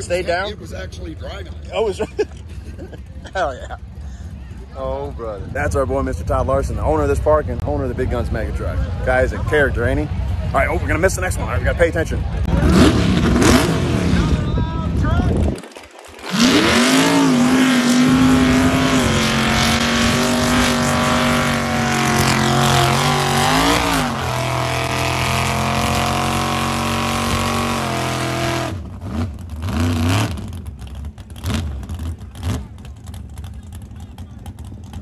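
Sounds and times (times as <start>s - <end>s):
truck engine revving: 11.2s - 14.6s, 15.3s - 35.0s.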